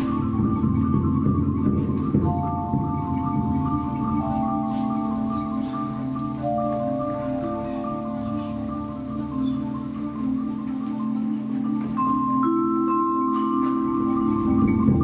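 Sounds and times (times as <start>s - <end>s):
low drumming: 0.0s - 9.4s
long held mallet notes: 0.0s - 15.0s
marimba ostinato: 0.0s - 15.0s.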